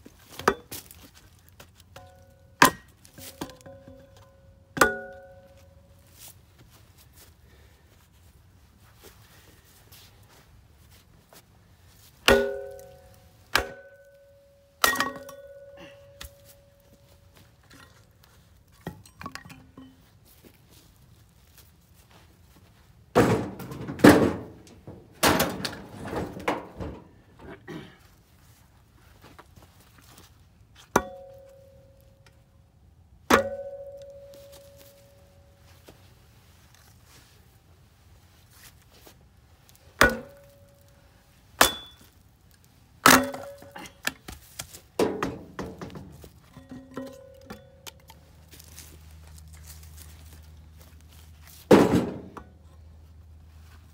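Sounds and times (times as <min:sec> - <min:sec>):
metallic ring: 0:12.3 - 0:17.9, 0:31.0 - 0:32.3, 0:33.4 - 0:35.7
firewood dropped onto wood: 0:23.2 - 0:27.1, 0:43.1 - 0:48.8, 0:51.5 - 0:52.4.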